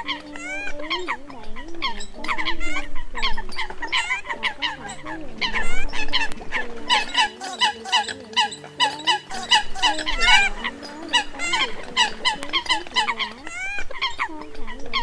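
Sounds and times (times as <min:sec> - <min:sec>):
coots calling: 0:00.0 - 0:15.0.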